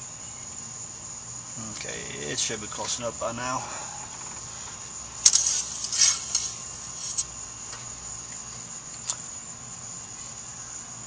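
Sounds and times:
crickets chirring: 0.0s - 11.0s
dipstick metal clicks and scrapes: 5.2s - 7.4s.

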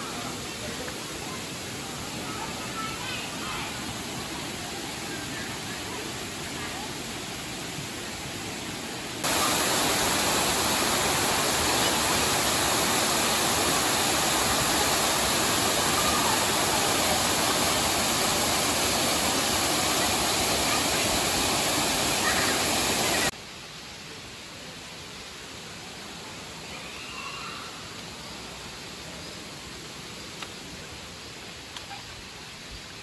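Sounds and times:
waterfall rushing: 0.0s - 23.6s
soft water sound: 0.0s - 33.0s.

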